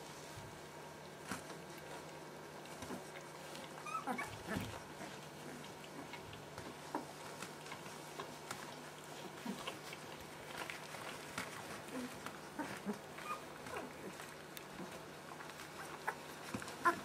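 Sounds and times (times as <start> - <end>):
puppies whimpering: 3.4 - 7.4, 9.1 - 17.0.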